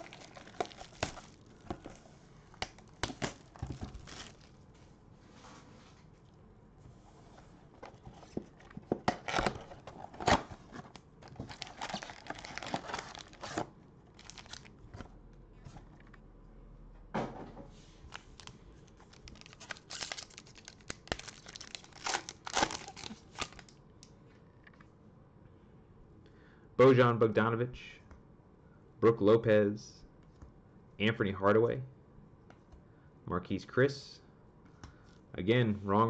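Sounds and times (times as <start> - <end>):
foil wrapper ripping and crinkling: 0.0 - 1.6, 2.5 - 4.6, 10.9 - 13.6, 14.2 - 14.7, 18.1 - 23.7
cardboard box opening: 7.9 - 14.7.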